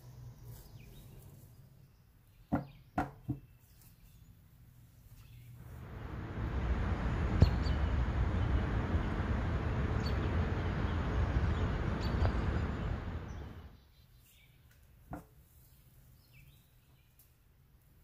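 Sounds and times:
low rumbling wind: 5.6 - 13.8.

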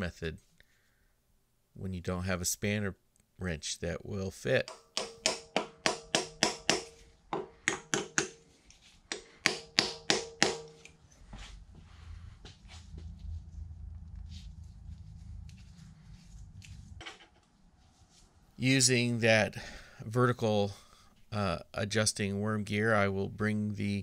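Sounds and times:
mallet tapping metal punch: 4.6 - 8.4, 9.1 - 10.9
low rumble: 11.2 - 17.0.

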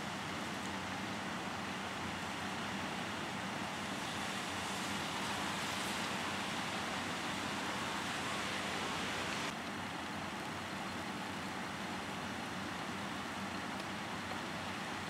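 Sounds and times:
hiss: 3.4 - 9.5.

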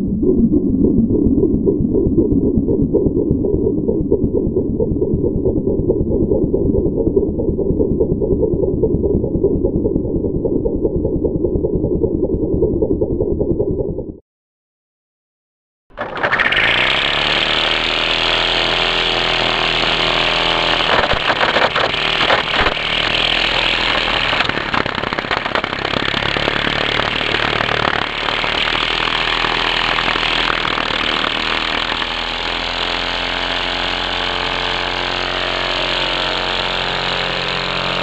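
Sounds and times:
string trimmer running: 16.0 - 38.0.

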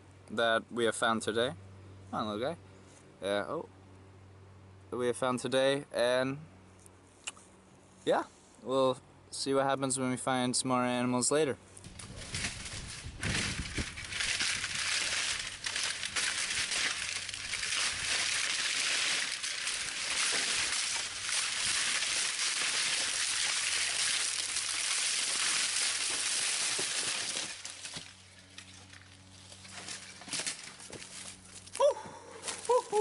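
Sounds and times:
dry brush and leaves crunching: 11.7 - 33.0.

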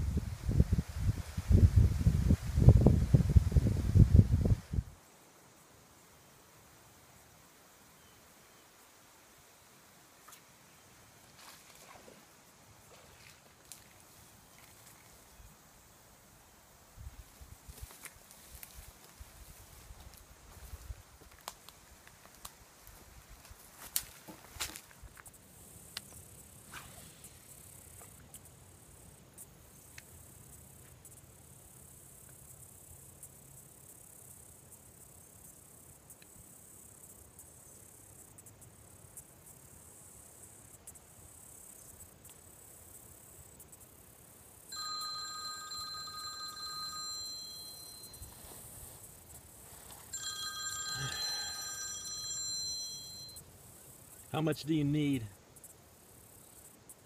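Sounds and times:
insects chirring: 5.0 - 57.0
cell phone ringtone: 44.7 - 48.5, 50.1 - 53.4.

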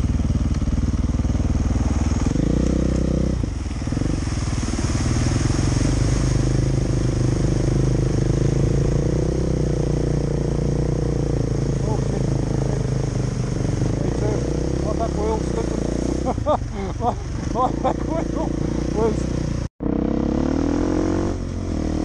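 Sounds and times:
dirt bike engine revving: 0.0 - 22.0
water spray hissing: 3.6 - 16.2.

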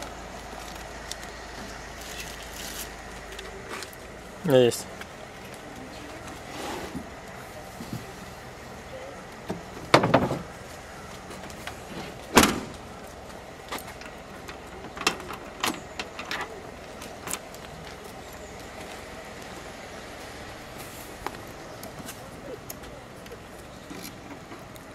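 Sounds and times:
heavy thump and rattle: 9.5 - 10.5, 11.9 - 12.8
car tailgate slamming shut: 12.3 - 12.8.

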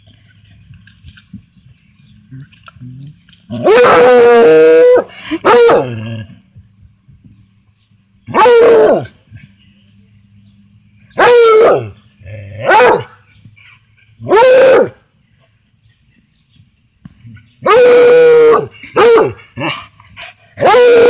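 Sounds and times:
dog barking: 12.6 - 13.2.

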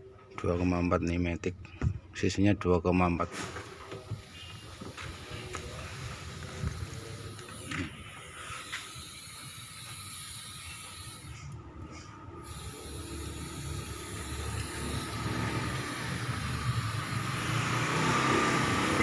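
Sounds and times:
air blow gun hissing: 3.9 - 11.5, 12.4 - 19.0.

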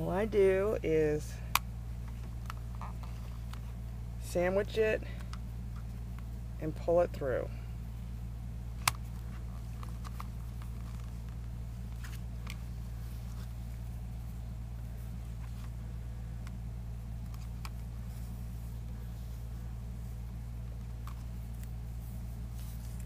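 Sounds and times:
steady low hum: 0.0 - 23.0
ribbon rustling: 8.7 - 23.0.

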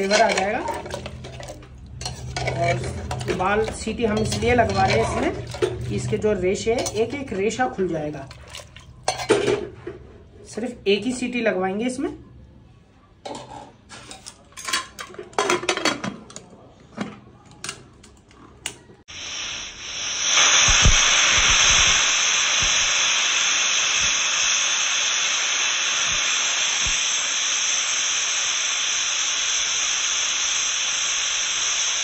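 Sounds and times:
pressure cooker whistle hissing: 19.1 - 32.0.

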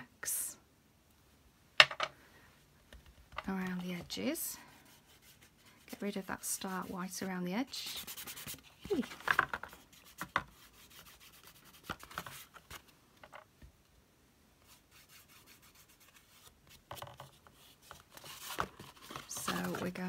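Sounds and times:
small scrapes and taps: 8.4 - 10.7, 16.0 - 20.0.

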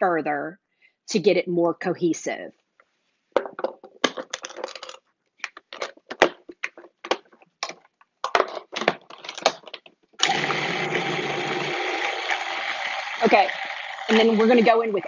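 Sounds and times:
plastic clicks and knocks: 3.4 - 10.0.

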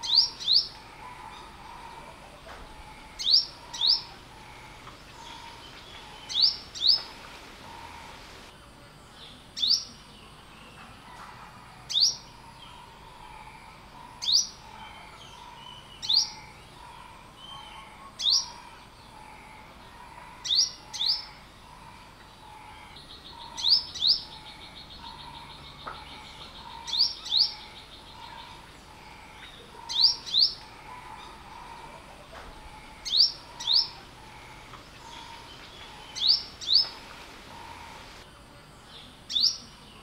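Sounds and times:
bird chip calls: 20.2 - 38.2.

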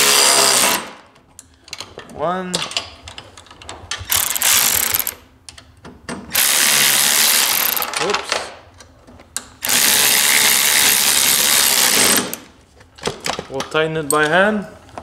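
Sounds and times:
ratchet wrench clicking: 4.1 - 5.3.

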